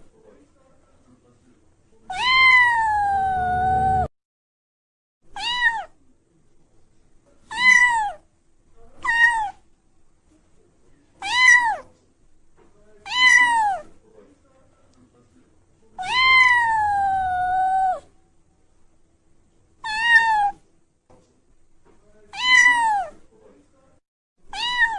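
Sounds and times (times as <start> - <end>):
kitten meowing: 2.1 - 4.1, 5.4 - 5.9, 7.5 - 8.2, 9.0 - 9.6, 11.2 - 11.8, 13.1 - 13.8, 16.0 - 18.1, 19.8 - 20.6, 22.3 - 23.1, 24.5 - 24.9.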